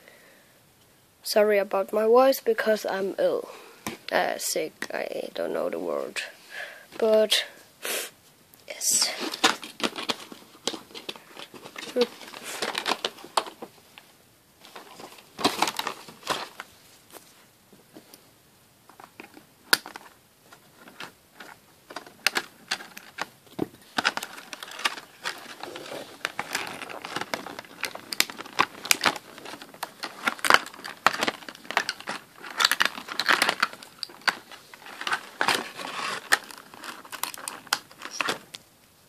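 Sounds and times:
plastic packaging crinkling: 8.9 - 13.7, 14.6 - 16.7, 18.9 - 38.6.

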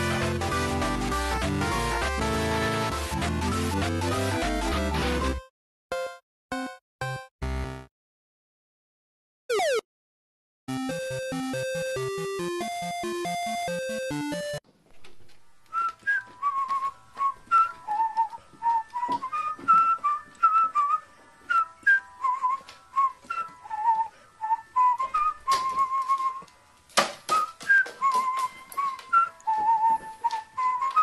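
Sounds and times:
whistled bouncy melody: 10.8 - 14.6, 15.6 - 26.5, 27.3 - 31.0.

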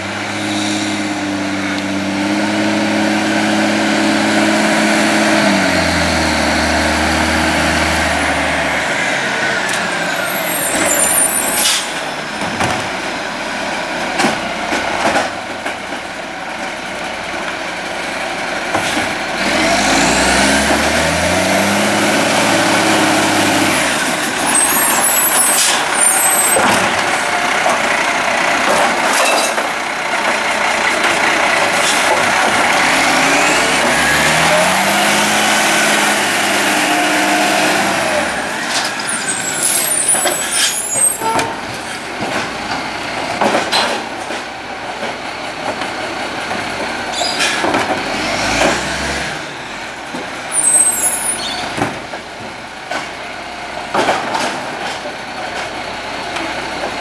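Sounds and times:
diesel engine revving: 0.0 - 57.0
air brakes hissing: 0.4 - 1.2, 10.0 - 12.1.

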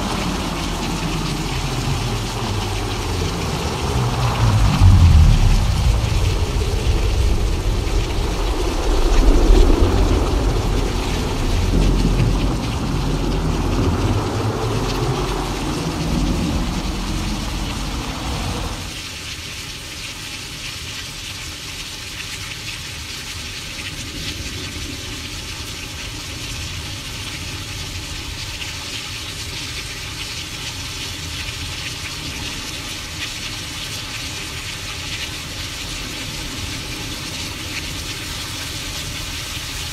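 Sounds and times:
thunder rumbling: 0.0 - 19.0
steady rain hiss: 0.0 - 39.9.

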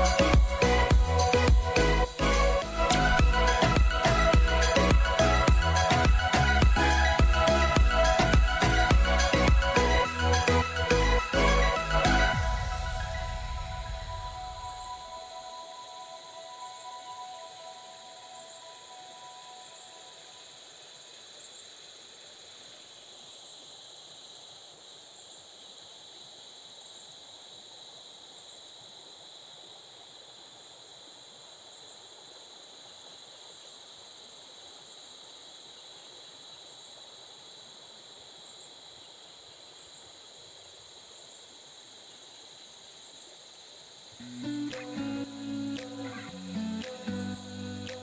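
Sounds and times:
stream water rushing: 0.0 - 21.0
insects buzzing: 0.0 - 48.0.

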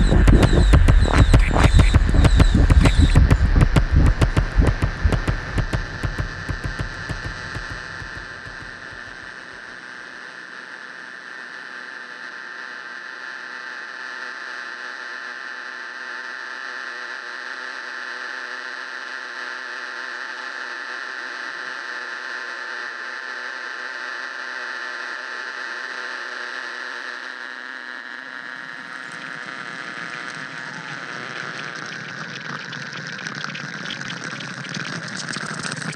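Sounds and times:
buzzing electronic drone music: 0.0 - 9.4, 28.8 - 35.9.

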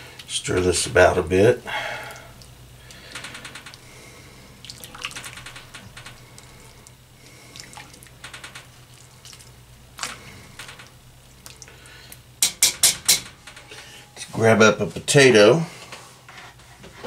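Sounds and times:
stew sloshing: 4.6 - 5.3, 6.2 - 10.4
spoon knocking against pot: 12.4 - 13.3.

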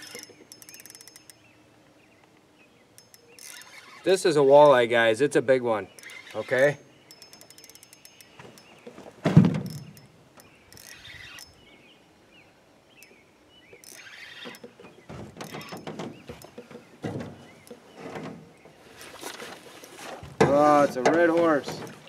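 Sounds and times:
fishing reel drag clicking: 0.0 - 1.5, 3.0 - 4.8, 5.9 - 8.8, 9.6 - 11.6, 13.8 - 14.8
knocks and shuffling in boat: 5.8 - 10.9, 13.7 - 22.0
heavy thump in metal boat: 9.2 - 9.7, 15.1 - 18.5, 20.2 - 22.0.

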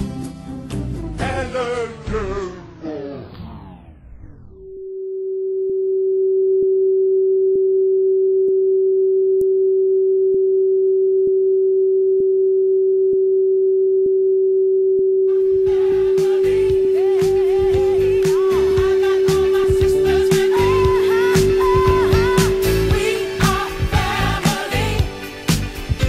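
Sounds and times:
music with singing: 0.0 - 3.4, 15.3 - 26.0
music winding down in pitch: 0.6 - 4.9, 15.4 - 25.8
test card tone beep: 15.6 - 23.9.

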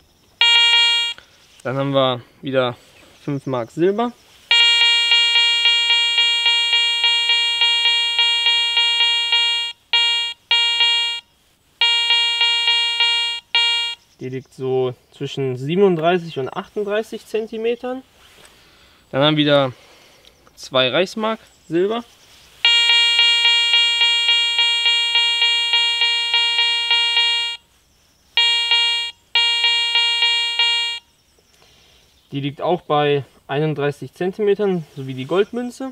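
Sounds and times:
metal detector pulsing beep: 0.4 - 1.2, 4.5 - 14.1, 22.6 - 27.6, 28.4 - 31.1.

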